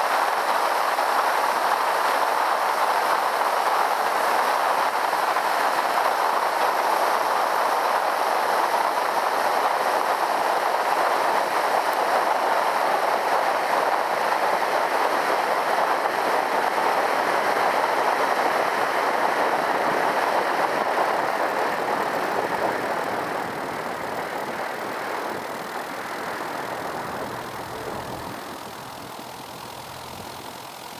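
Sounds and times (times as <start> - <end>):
aircraft rolling rumble: 19.7 - 30.7.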